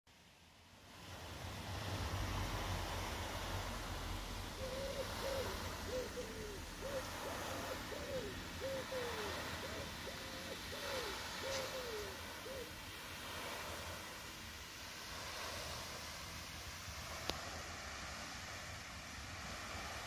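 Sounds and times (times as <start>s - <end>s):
water hissing: 0.9s - 20.0s
bird hooting: 4.5s - 12.8s.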